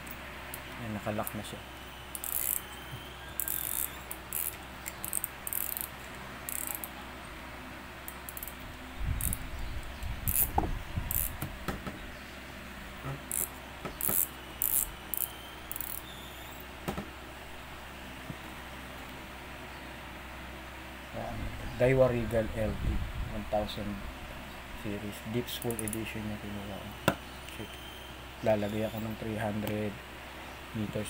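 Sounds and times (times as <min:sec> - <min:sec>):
fishing reel clicking rasps: 0:02.1 - 0:02.7, 0:03.4 - 0:05.9, 0:06.5 - 0:06.9, 0:08.3 - 0:08.6, 0:10.3 - 0:10.5, 0:11.1 - 0:11.4, 0:13.3 - 0:16.1, 0:25.6 - 0:26.0.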